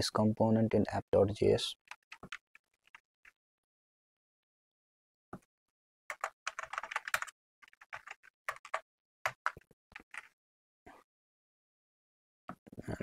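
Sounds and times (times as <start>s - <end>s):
computer keyboard typing: 1.9s - 3.0s, 6.1s - 10.3s.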